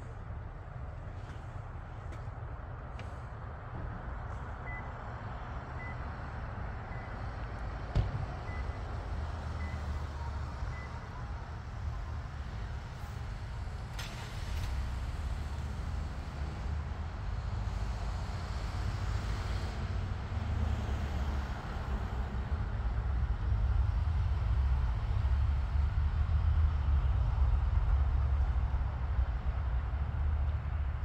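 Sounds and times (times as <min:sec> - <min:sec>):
vehicle rumbling: 0:00.0 - 0:31.0
thump: 0:07.9 - 0:08.3.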